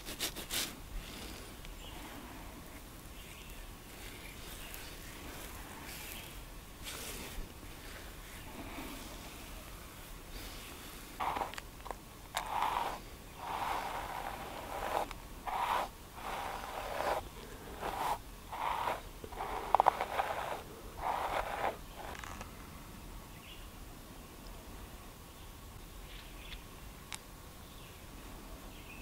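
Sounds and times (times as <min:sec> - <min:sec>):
brush scratching through beard: 0:00.0 - 0:00.8, 0:11.2 - 0:11.6, 0:12.3 - 0:22.2.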